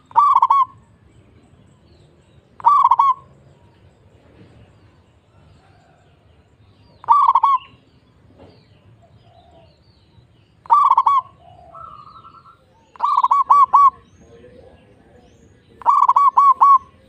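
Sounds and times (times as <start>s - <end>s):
dove cooing: 0.0s - 0.8s, 2.6s - 3.7s, 7.0s - 7.9s, 9.0s - 9.8s, 10.6s - 17.0s.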